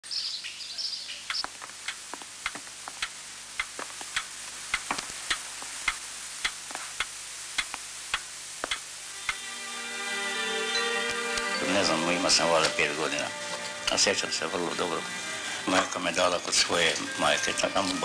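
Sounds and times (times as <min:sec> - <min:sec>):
pendulum clock ticking: 0:01.2 - 0:09.4.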